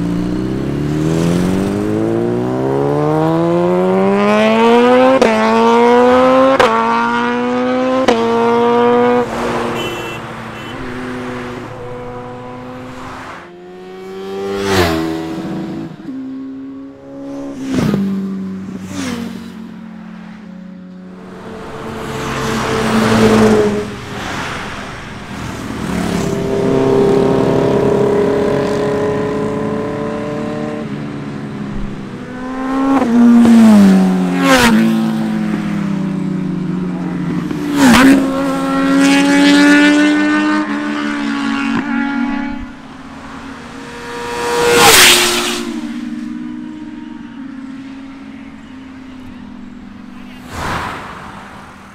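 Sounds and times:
vehicle passing loudly: 0.0s - 31.0s, 31.7s - 51.9s
lorry engine revving past: 0.1s - 18.2s, 21.0s - 31.0s.

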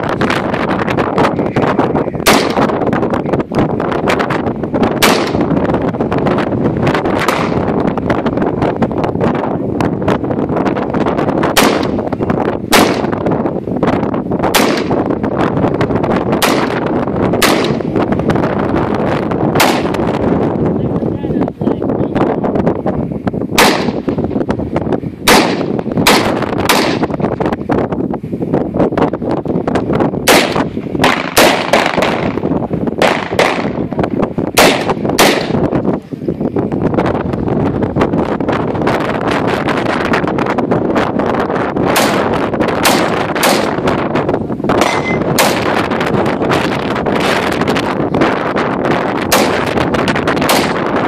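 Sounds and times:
faint distant gunshots: 2.2s - 2.8s, 5.0s - 5.6s, 11.5s - 12.0s, 12.7s - 13.2s, 14.5s - 15.1s, 16.4s - 18.0s, 19.6s - 20.2s, 23.6s - 24.1s, 25.2s - 27.1s, 30.3s - 32.4s, 33.0s - 33.8s, 34.6s - 35.6s, 41.9s - 44.0s, 44.8s - 45.9s, 49.3s - 49.8s, 50.4s - 51.0s
rifle shots with echo: 2.2s - 2.8s, 5.0s - 5.7s, 7.2s - 7.8s, 11.5s - 12.0s, 12.7s - 13.2s, 14.5s - 15.1s, 16.3s - 18.0s, 19.6s - 20.2s, 23.6s - 24.1s, 25.2s - 27.1s, 30.2s - 32.4s, 33.0s - 33.8s, 34.6s - 35.7s, 41.9s - 44.0s, 44.8s - 47.5s, 49.3s - 51.0s.

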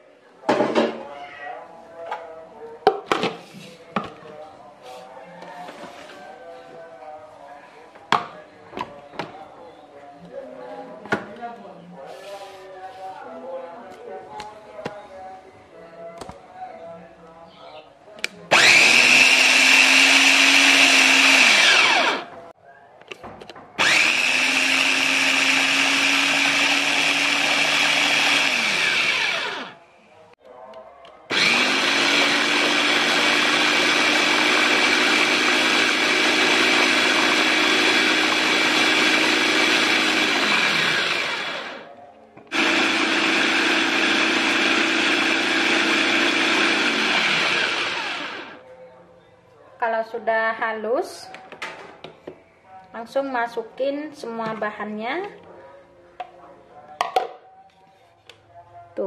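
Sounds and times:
food chopper motor whirring: 18.5s - 22.3s, 23.8s - 29.8s, 31.3s - 41.9s, 42.5s - 48.6s.

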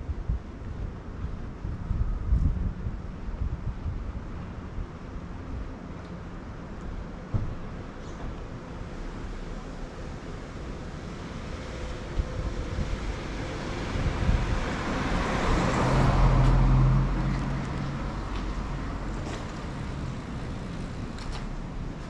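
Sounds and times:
background traffic: 0.0s - 22.0s
vehicle passing: 11.1s - 21.1s.

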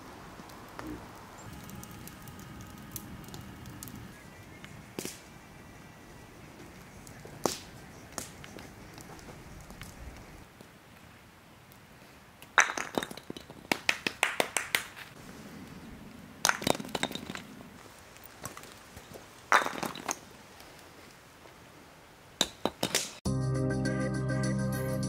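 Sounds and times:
wooden blocks clattering over: 12.6s - 14.5s, 16.5s - 17.5s, 19.5s - 20.2s
wooden batons clacking on blocks: 12.6s - 15.1s, 22.4s - 23.2s.

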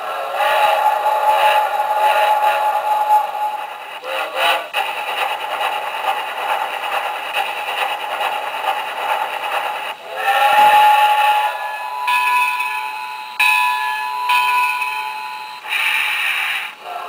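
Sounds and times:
steam whistle: 0.0s - 4.7s, 10.0s - 13.5s
steam engine rush and rattle: 0.0s - 17.0s.

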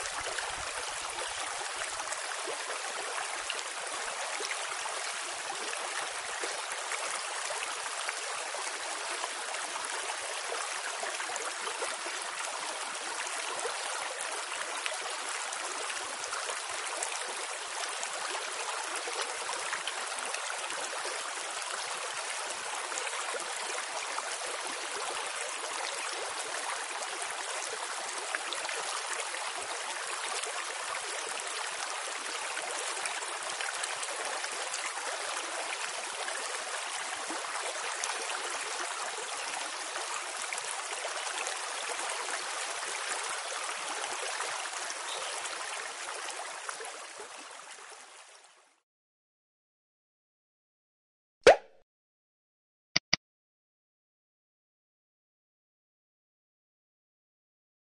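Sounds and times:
running water: 0.0s - 48.4s.

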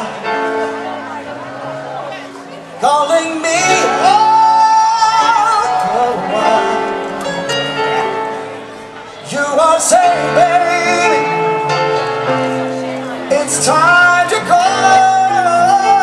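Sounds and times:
live band playing: 0.0s - 16.0s
person singing long notes: 2.8s - 8.4s.

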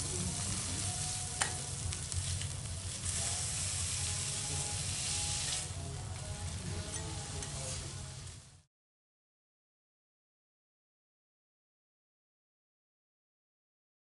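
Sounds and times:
steaks sizzling on griddle: 0.0s - 8.7s
metal utensils clicking on griddle: 1.2s - 4.3s, 4.9s - 7.9s.

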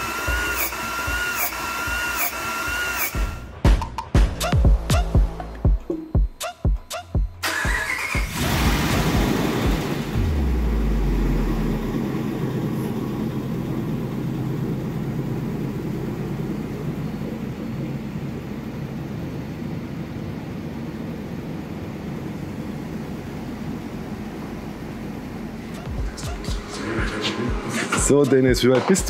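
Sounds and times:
engine starting and idling: 7.4s - 18.7s.

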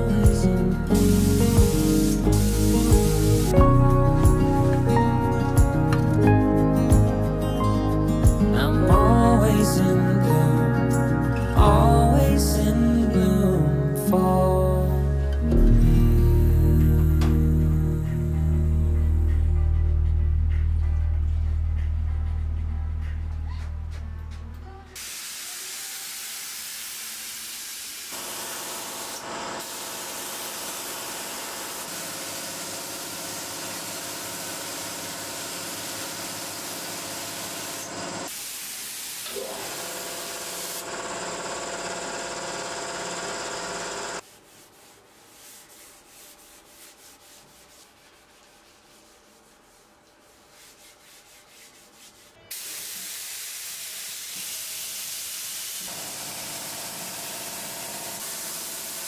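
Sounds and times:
spray gun hissing: 0.9s - 3.6s, 25.0s - 41.0s, 52.5s - 59.0s.

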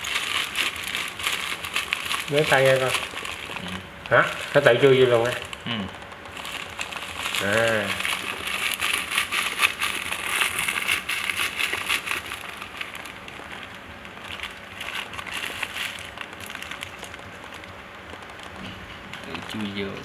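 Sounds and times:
hamster scratching in sand: 6.4s - 13.1s.

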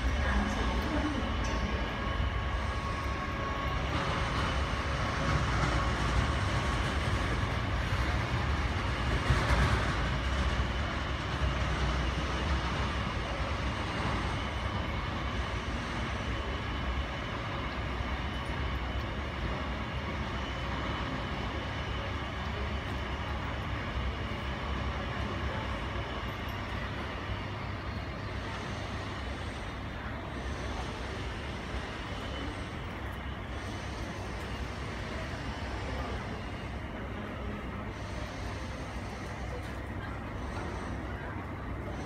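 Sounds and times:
faint whining tones: 12.1s - 42.0s.

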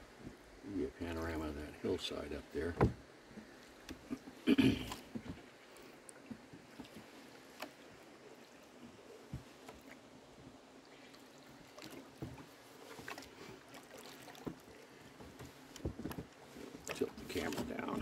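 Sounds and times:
faint water lapping: 0.0s - 18.0s
light knocks on boat: 2.7s - 3.1s, 15.2s - 17.9s.

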